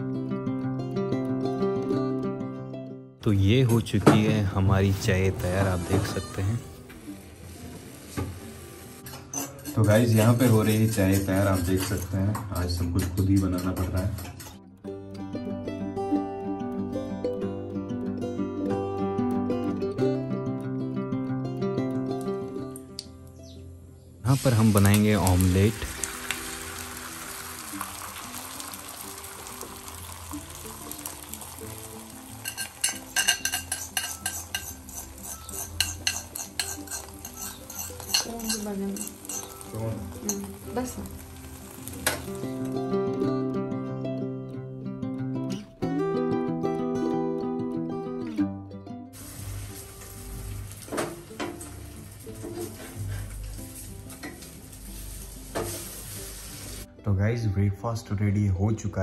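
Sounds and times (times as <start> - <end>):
faint acoustic guitar music: 0.0 - 59.0
egg sizzling in frying pan: 6.8 - 9.5, 24.3 - 42.8, 49.2 - 56.9
metal utensil clinking: 9.0 - 14.6, 31.5 - 41.0
spatula scraping and knocking pan: 32.4 - 39.7.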